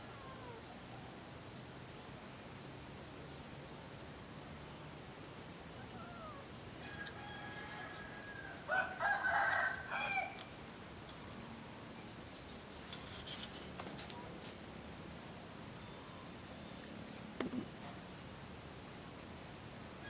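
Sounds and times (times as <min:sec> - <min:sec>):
small birds chirping: 0:00.0 - 0:19.6
rooster crowing: 0:06.8 - 0:10.4.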